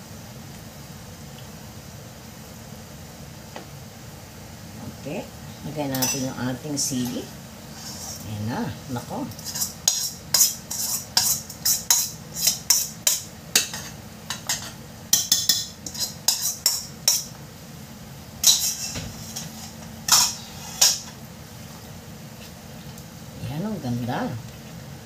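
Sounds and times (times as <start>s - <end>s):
wooden spoon scraping a metal pot: 7.7s - 8.4s, 9.3s - 13.0s, 15.4s - 17.2s, 18.4s - 21.1s.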